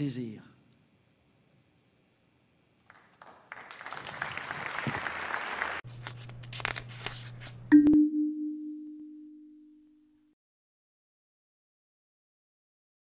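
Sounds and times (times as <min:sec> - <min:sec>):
audience applauding: 0:02.8 - 0:05.8
scattered claps: 0:02.8 - 0:05.8
low steady hum: 0:05.9 - 0:10.3.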